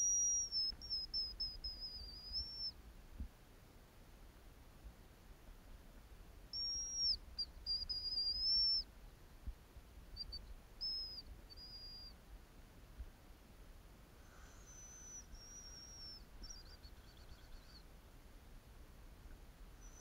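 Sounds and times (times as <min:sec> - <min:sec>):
high bird whistles: 0:00.0 - 0:02.7, 0:06.5 - 0:08.8, 0:10.2 - 0:12.2, 0:14.5 - 0:17.8.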